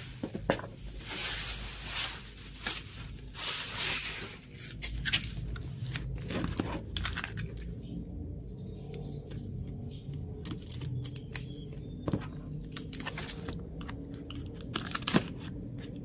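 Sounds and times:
bubble wrap crinkling: 0.0 - 7.7, 12.7 - 15.8.

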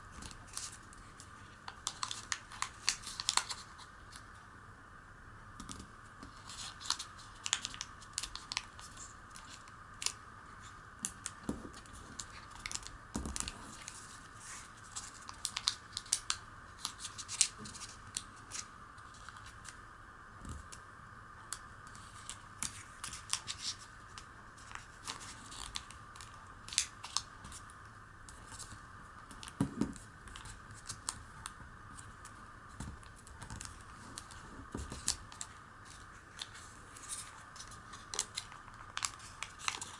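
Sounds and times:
faint steady hiss: 0.0 - 39.9
paper being folded and creased: 0.2 - 4.2, 6.3 - 19.8, 21.9 - 27.6, 33.1 - 39.9.

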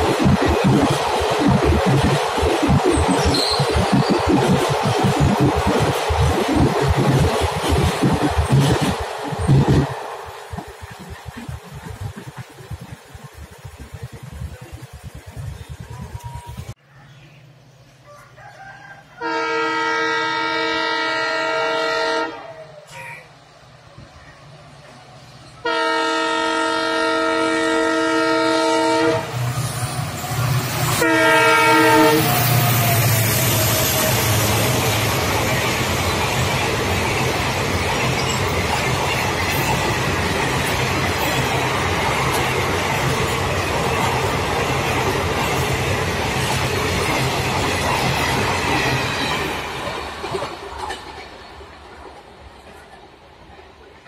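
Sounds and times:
train passing at speed: 0.0 - 54.0
locomotive horn blasts: 19.2 - 22.5, 25.6 - 29.4, 31.0 - 32.6.

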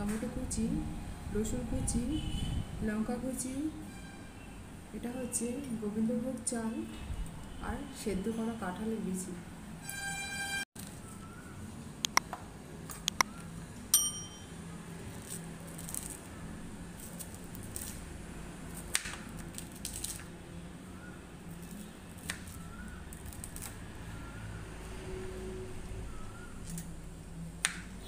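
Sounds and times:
bell ding: 14.0 - 14.6.

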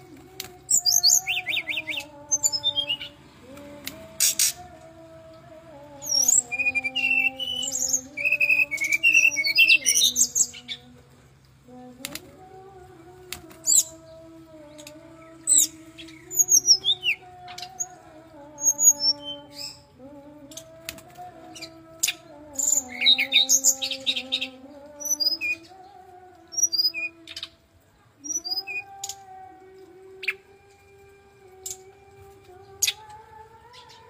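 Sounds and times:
bird singing whistled notes: 6.1 - 10.7, 28.2 - 29.2.

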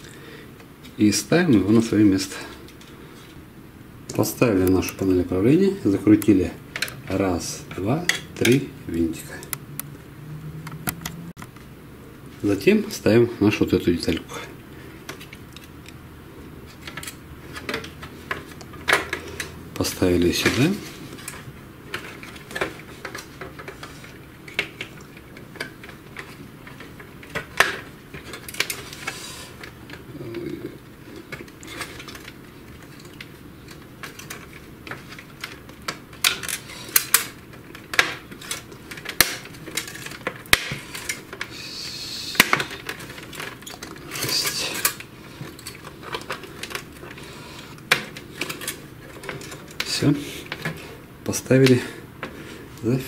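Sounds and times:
printer parts clicking and knocking: 31.3 - 41.5.

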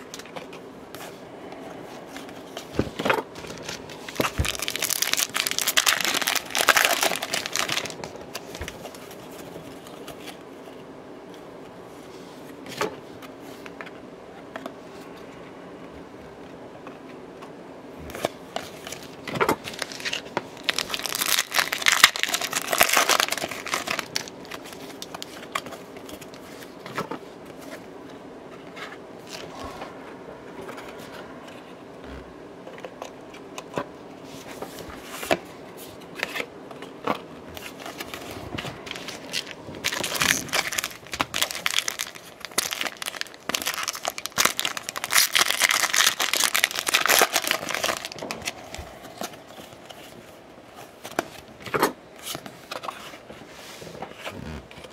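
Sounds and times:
trading cards rustling: 0.2 - 10.4, 18.1 - 27.8, 34.3 - 51.4
foil wrapper crinkling and tearing: 3.5 - 9.1, 19.6 - 26.4, 38.8 - 48.8.

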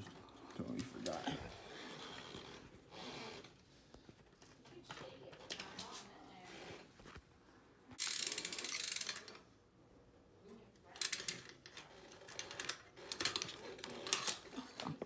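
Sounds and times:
bike hub ratcheting clicks: 8.0 - 9.4, 11.0 - 14.4.

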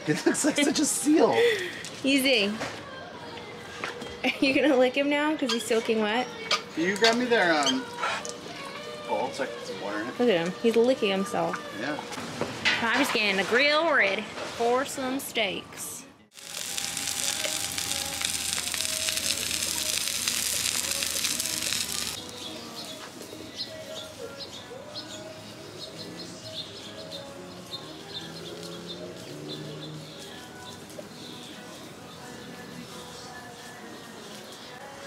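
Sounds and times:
loud steady hiss: 16.4 - 22.9
small birds chirping: 16.4 - 35.0.

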